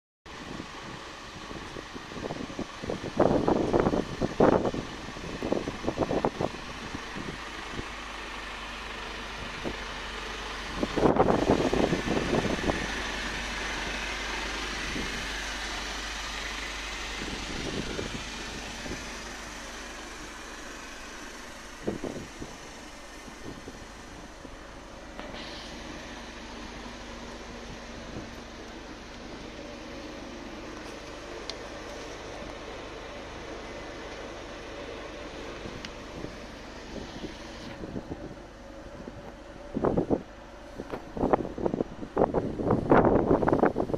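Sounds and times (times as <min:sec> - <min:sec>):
wind buffeting microphone: 0:00.3 - 0:08.0, 0:10.6 - 0:19.6, 0:21.5 - 0:24.7, 0:35.4 - 0:43.9
truck diesel engine idling: 0:00.3 - 0:43.9.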